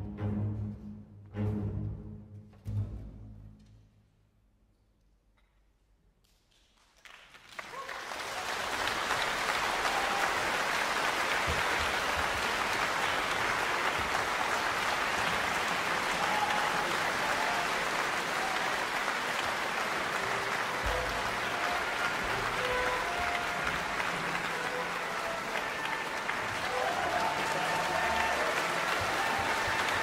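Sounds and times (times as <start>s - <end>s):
audience applauding: 6.8s - 30.0s.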